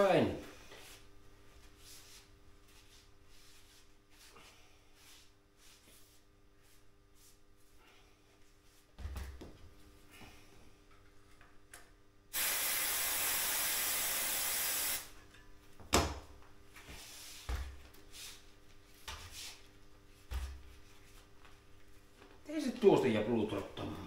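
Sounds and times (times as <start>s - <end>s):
compressed air hissing: 12.3s - 15.1s.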